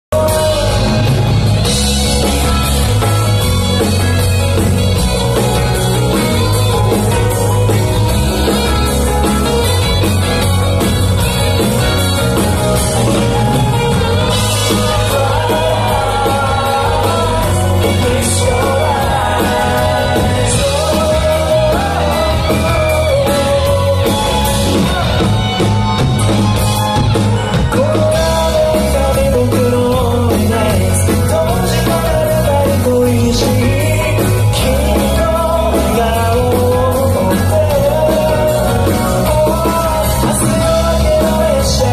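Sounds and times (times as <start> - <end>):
acoustic guitar: 0.1 - 41.9
electric bass: 0.1 - 41.9
lead vocal singing: 0.2 - 4.8, 11.7 - 25.8, 27.5 - 41.9
electric guitar: 0.2 - 41.9
steady drum beat: 0.2 - 41.9.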